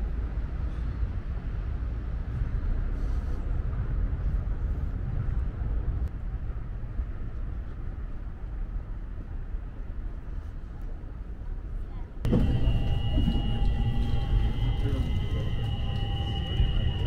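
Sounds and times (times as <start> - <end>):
vehicle rumbling in motion: 0.0 - 17.0.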